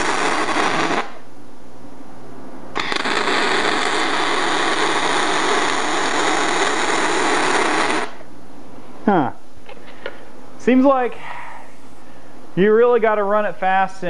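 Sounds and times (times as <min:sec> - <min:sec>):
welding arc: 0:00.0 - 0:01.2, 0:02.8 - 0:08.3.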